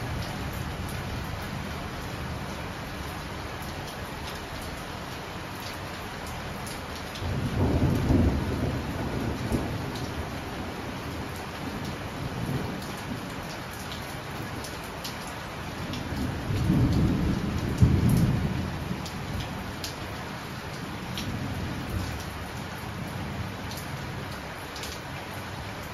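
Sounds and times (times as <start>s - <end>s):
heavy rain falling: 0.0s - 25.9s
rolling thunder: 7.2s - 13.3s, 16.1s - 19.4s.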